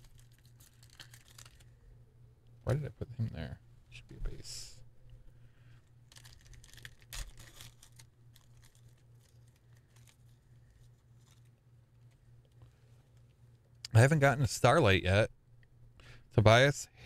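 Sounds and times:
cellophane wrapper crinkling: 0.0 - 1.8, 6.0 - 12.2
low steady hum: 0.0 - 17.0.

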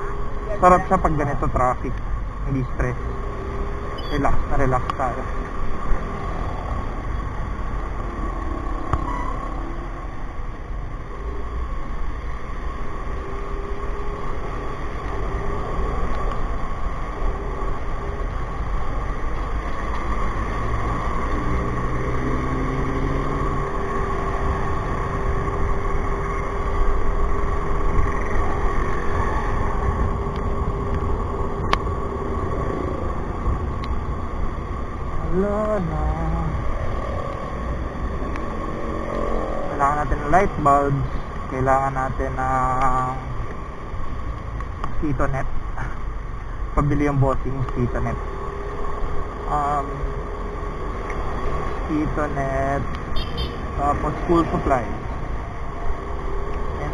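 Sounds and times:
wind rumble on microphone: 23.0 - 41.6.

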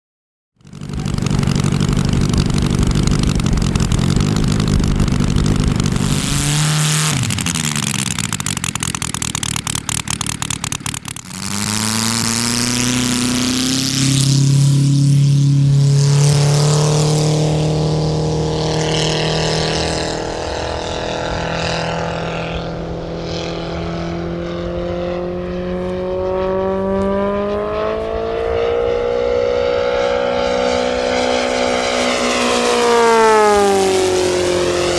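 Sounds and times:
model aircraft engine: 0.6 - 34.9.

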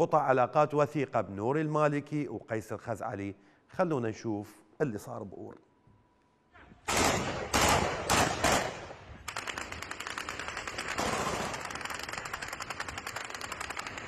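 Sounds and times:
single gunshots: 6.9 - 9.0
rapid automatic gunfire: 6.9 - 14.0.

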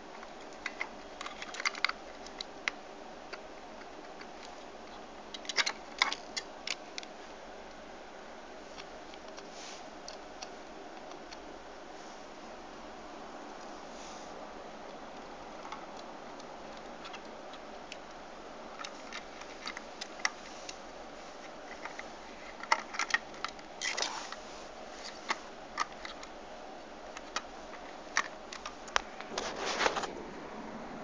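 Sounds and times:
steady hiss: 13.5 - 15.6.

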